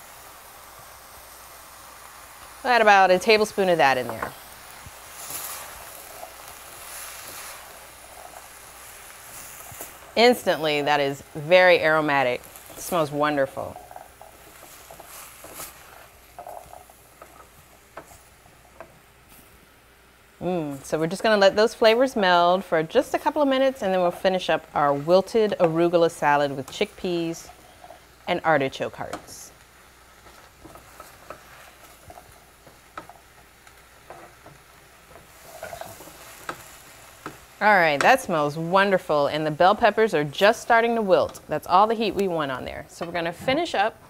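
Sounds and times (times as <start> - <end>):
faint sizzle: 0.0 - 44.0
low hiss from pan: 0.0 - 44.0
utensil stirring in a pot: 1.2 - 19.0, 23.2 - 38.9.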